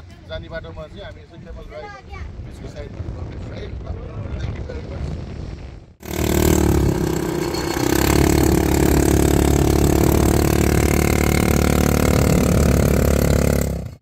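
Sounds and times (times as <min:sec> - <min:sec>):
quad bike engine: 0:06.0 - 0:14.0.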